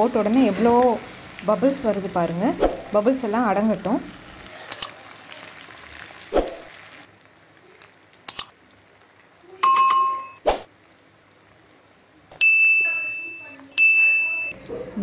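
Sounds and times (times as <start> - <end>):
food deep-frying in oil: 0.0 - 9.7
sharp clicks: 8.3 - 8.5.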